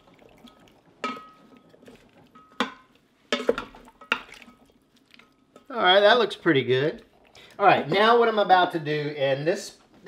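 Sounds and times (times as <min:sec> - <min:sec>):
spatula stirring food: 0:00.0 - 0:08.1
spatula knocking metal pot: 0:02.4 - 0:04.4.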